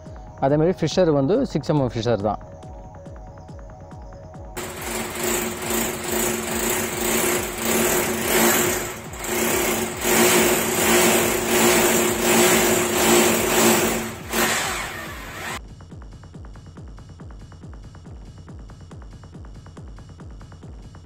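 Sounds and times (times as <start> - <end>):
electric drill boring into wall: 4.6 - 15.6.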